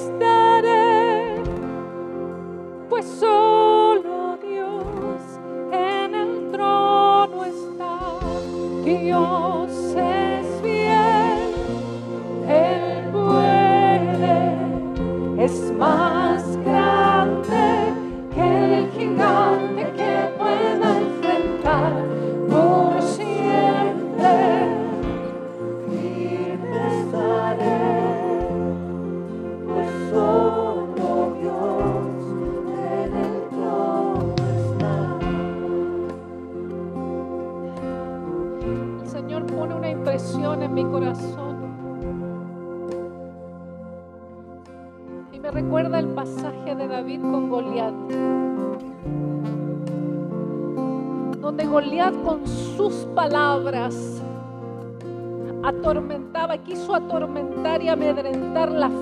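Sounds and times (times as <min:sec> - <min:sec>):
electric guitar: 0:00.0 - 0:59.0
woman singing with vibrato: 0:02.9 - 0:36.2
low bass notes: 0:10.0 - 0:46.0.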